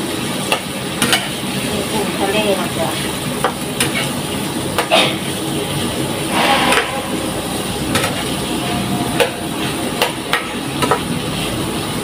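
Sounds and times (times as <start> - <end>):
shrimp sizzling in oil: 0.0 - 12.0
spatula scraping and knocking pan: 6.3 - 11.0.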